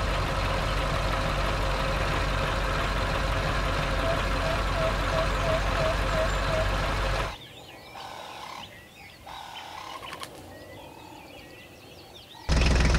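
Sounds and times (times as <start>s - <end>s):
loud engine-like noise: 0.0s - 7.4s, 12.5s - 12.9s
small birds chirping: 3.5s - 12.6s.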